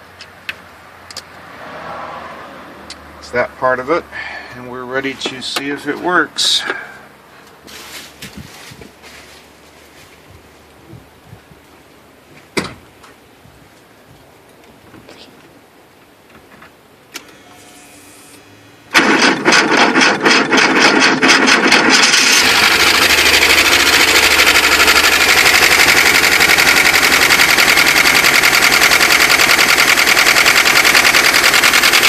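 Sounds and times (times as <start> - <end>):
engine idling: 17.4 - 32.0
engine starter cranking: 18.9 - 32.0.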